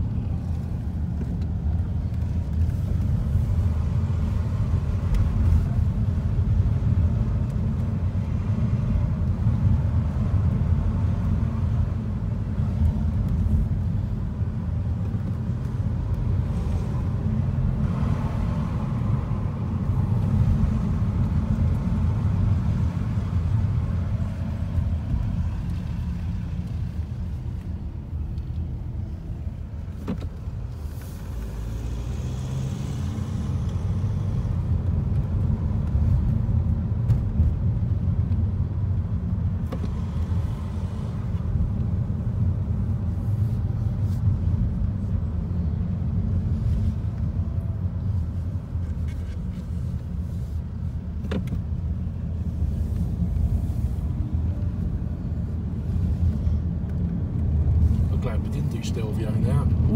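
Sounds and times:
car cabin rumble: 0:00.0 - 0:31.4.

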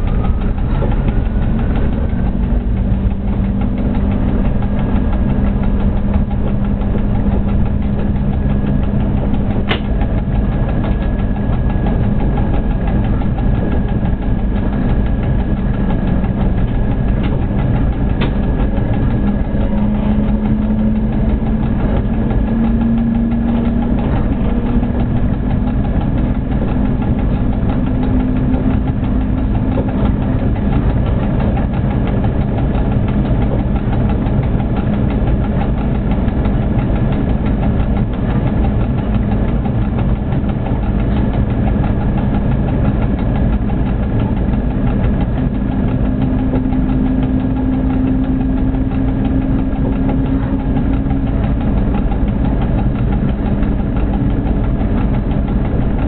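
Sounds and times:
locomotive drive hum: 0:00.0 - 0:56.0
locomotive rumble and hiss: 0:23.3 - 0:56.0.

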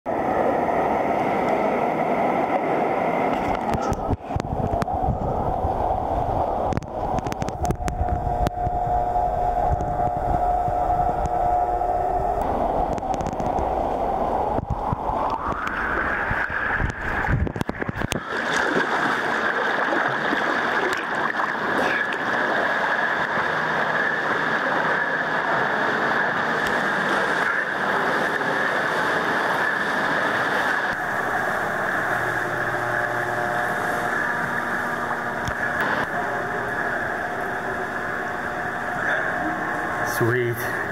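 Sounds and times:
pool water splashing from swimming: 0:12.5 - 0:40.9.

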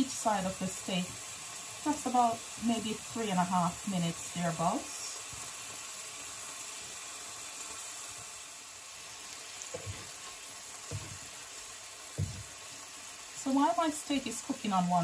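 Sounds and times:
steak sizzling in a frying pan: 0:00.0 - 0:15.0
soft low thuds: 0:12.2 - 0:12.6.

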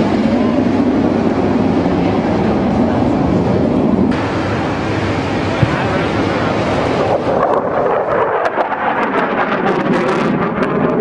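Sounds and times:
jet engine roaring: 0:00.0 - 0:11.0.

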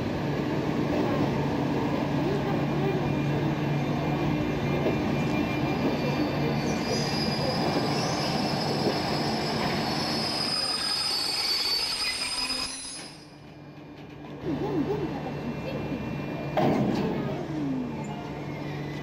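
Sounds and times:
wheels squealing on rails: 0:03.2 - 0:13.8, 0:17.9 - 0:19.0.

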